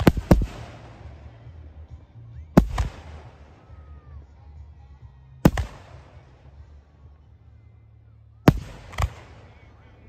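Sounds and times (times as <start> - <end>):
firework bangs: 0.0 - 1.5.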